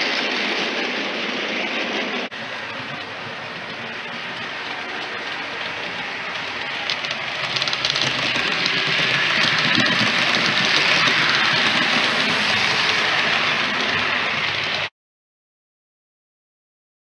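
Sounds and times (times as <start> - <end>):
model train running on track: 0.0 - 14.9
wheels clicking: 2.3 - 14.9.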